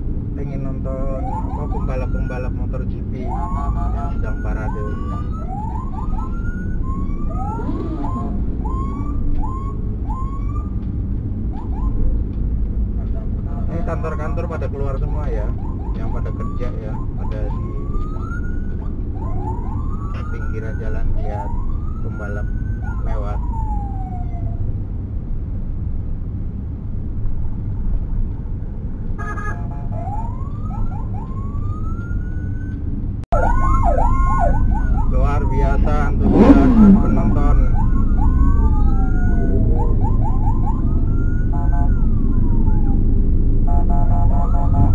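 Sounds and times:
engine and road rumble: 0.0s - 44.9s
sirens whooping: 0.4s - 24.8s, 29.2s - 44.9s.

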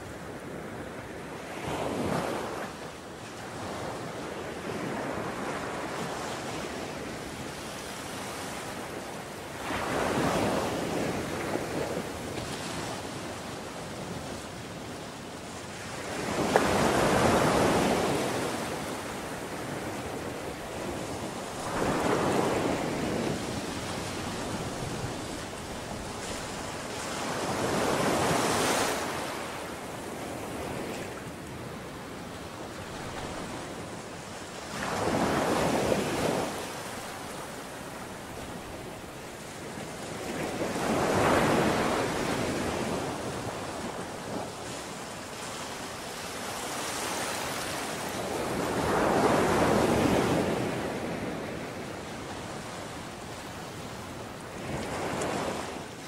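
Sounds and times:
ocean waves breaking: 16.1s - 31.6s.

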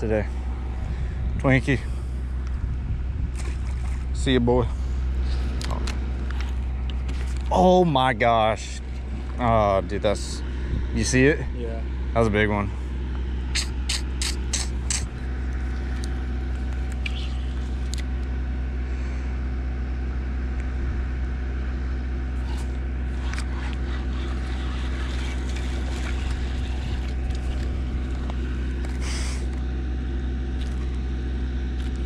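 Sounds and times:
engine drone: 0.0s - 32.0s.

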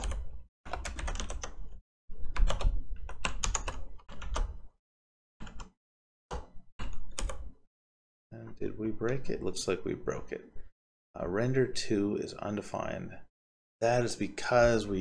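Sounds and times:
computer keyboard typing: 0.0s - 1.7s, 2.3s - 4.6s, 5.4s - 7.5s.

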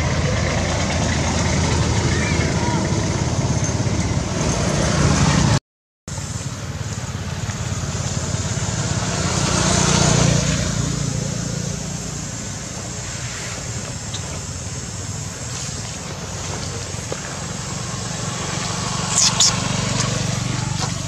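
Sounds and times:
rumbling background noise with hiss: 10.3s - 21.0s.

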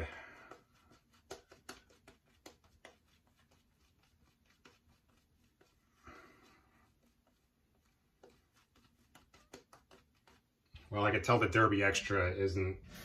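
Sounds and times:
razor scratching through stubble: 0.5s - 5.9s, 6.8s - 10.6s.

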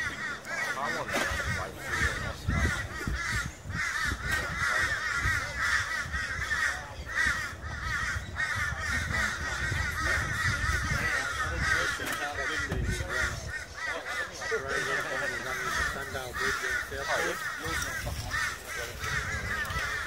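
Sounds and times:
flock of birds calling: 0.0s - 20.0s.

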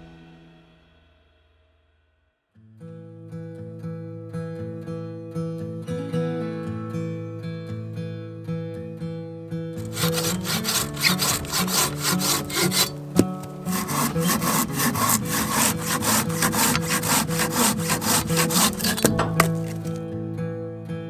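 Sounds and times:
pull saw cutting branch: 9.8s - 20.0s.

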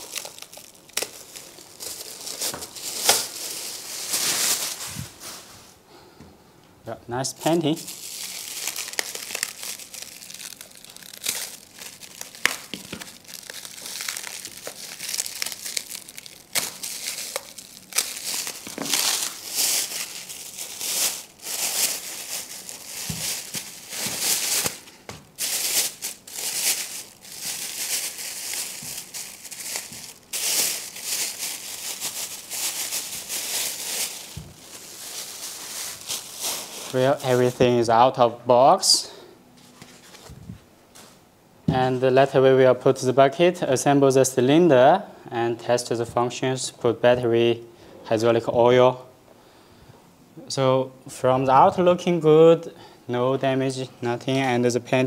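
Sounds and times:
plastic bag crinkling: 0.0s - 5.8s, 7.4s - 37.8s.

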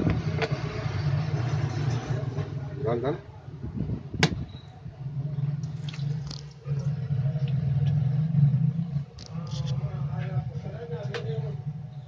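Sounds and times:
foaming water in tub: 5.0s - 10.1s.

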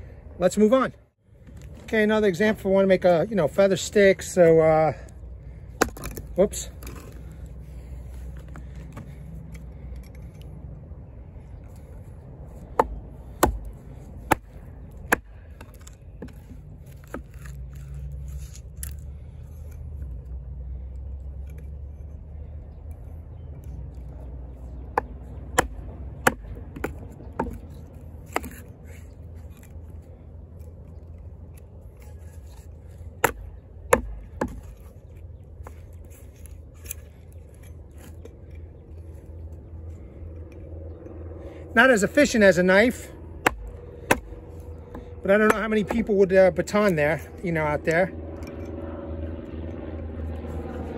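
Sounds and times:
axe biting into log: 5.6s - 7.5s, 12.5s - 20.0s, 24.8s - 39.4s, 43.4s - 47.3s.

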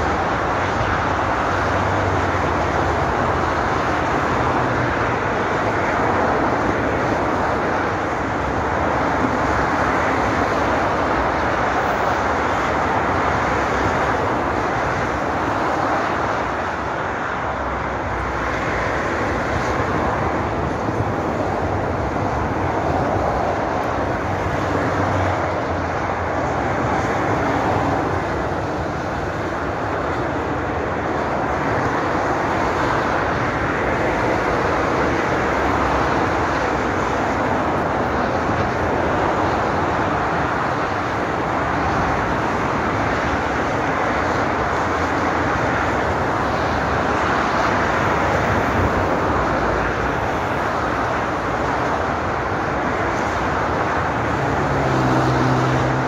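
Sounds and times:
motorway traffic roar: 0.0s - 56.0s.

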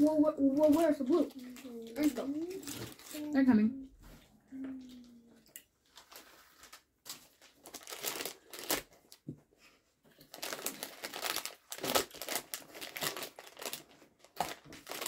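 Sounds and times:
plastic wrappers crinkling: 0.0s - 9.2s, 10.1s - 15.0s.

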